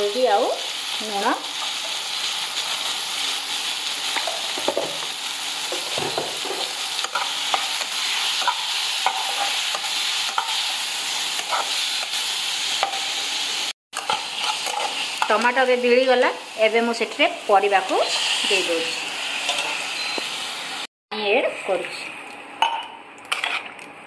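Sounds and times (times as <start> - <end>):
tomatoes sizzling in hot oil: 0.0 - 21.9
metal spatula scraping pan: 14.0 - 15.4, 23.3 - 23.7.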